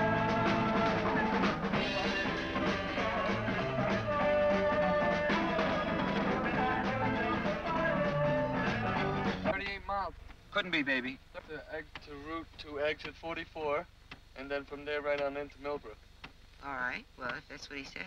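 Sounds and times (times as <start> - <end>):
background music with drums: 0.0 - 10.5.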